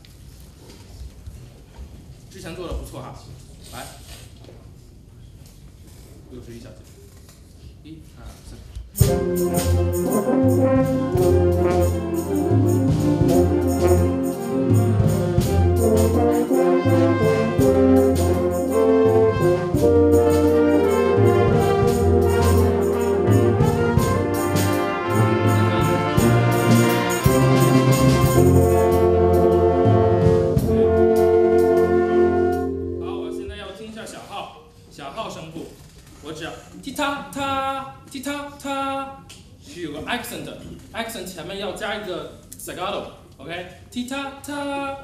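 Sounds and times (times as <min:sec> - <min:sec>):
concert wind band playing: 0:09.0 - 0:34.1.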